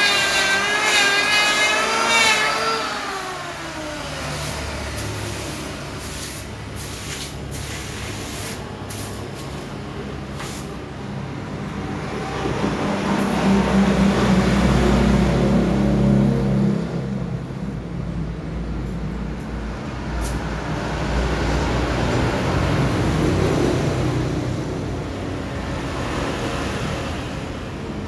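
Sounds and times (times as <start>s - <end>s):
electric planer winding down: 0.0s - 4.8s
shavings swept with scraping strokes: 4.3s - 9.7s, 10.4s - 10.7s.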